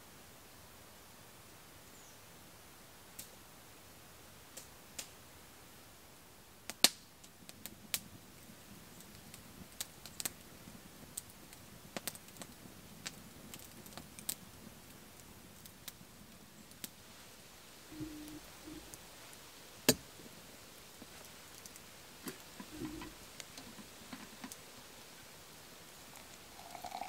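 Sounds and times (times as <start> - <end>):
campfire crackling and popping: 3.1 - 3.4, 4.4 - 5.3, 6.6 - 27.0.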